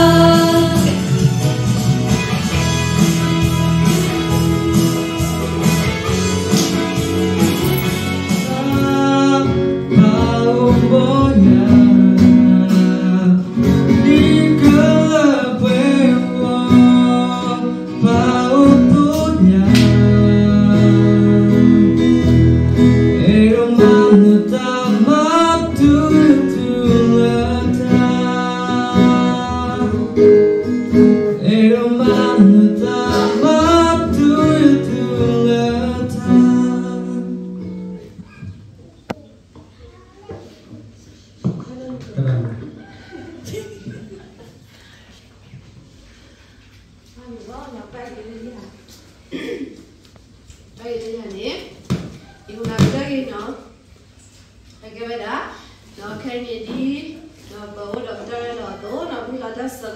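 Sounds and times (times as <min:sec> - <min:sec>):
young man singing: 0:00.0 - 0:01.5, 0:07.8 - 0:38.1
acoustic guitar: 0:00.0 - 0:54.9.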